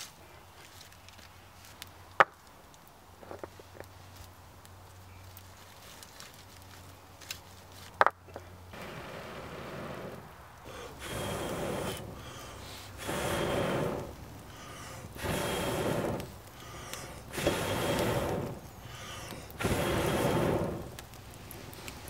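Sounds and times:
man blowing on fire: 8.8s - 22.0s.

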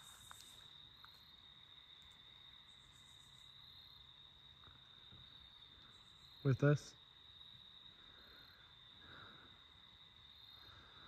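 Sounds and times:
crickets trilling: 0.0s - 11.0s.

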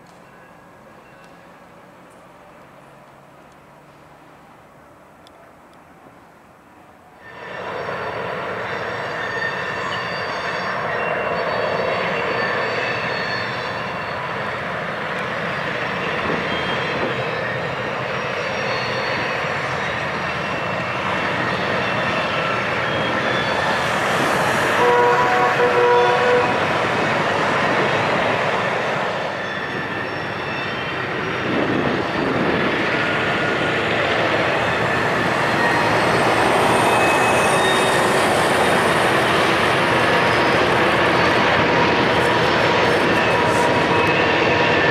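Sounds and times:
diesel locomotive engine drone: 0.0s - 44.9s
rail noise: 0.0s - 44.9s
train horn blast: 24.5s - 26.7s.

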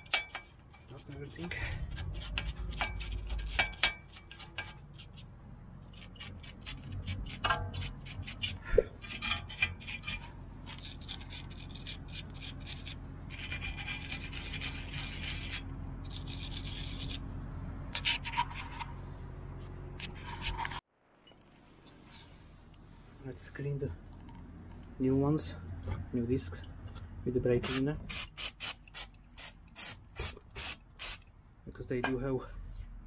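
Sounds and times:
tool scraping rust off metal: 0.0s - 19.1s
low steady hum: 0.0s - 28.2s.

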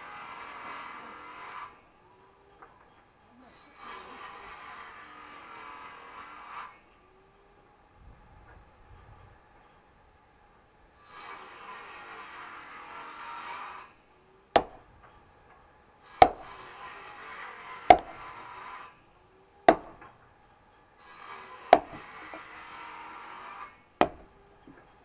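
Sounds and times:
axe chopping firewood: 14.6s - 14.9s, 16.1s - 16.8s, 17.8s - 18.5s, 19.7s - 20.2s, 21.6s - 22.5s, 24.0s - 24.4s.

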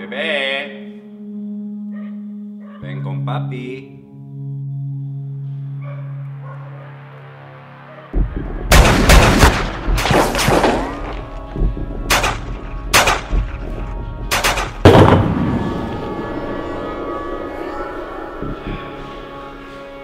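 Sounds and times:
handgun shots: 12.1s - 13.4s, 14.3s - 15.2s.

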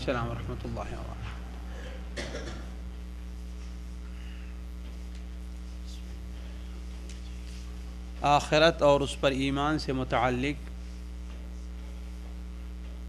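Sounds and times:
low electrical mains hum: 0.0s - 13.0s.

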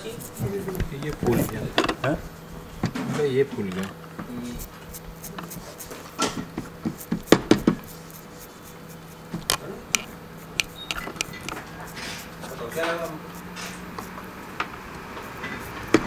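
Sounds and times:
faint steady hum: 0.0s - 16.0s
hand tool scraping a chip: 4.3s - 16.0s
sharp clicks: 9.4s - 11.7s.

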